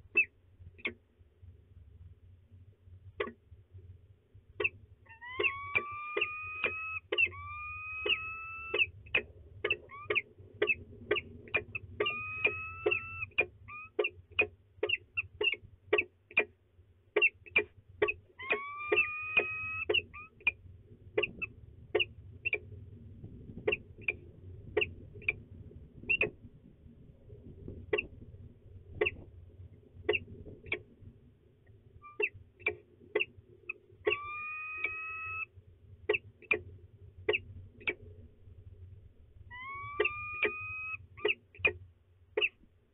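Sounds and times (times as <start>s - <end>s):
falcon wailing call: 5.1s - 14.2s, 18.4s - 20.6s, 34.0s - 35.5s, 39.5s - 41.4s.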